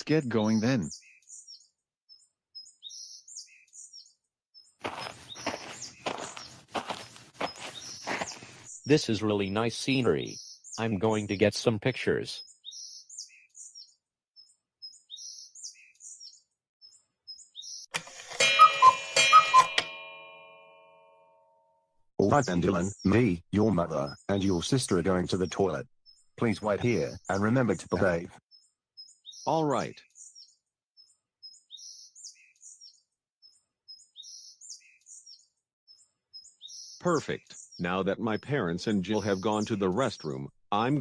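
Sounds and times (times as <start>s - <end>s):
birds chirping: 0.0s - 20.0s, 22.2s - 41.0s
bell-like chime jingle: 18.3s - 21.8s.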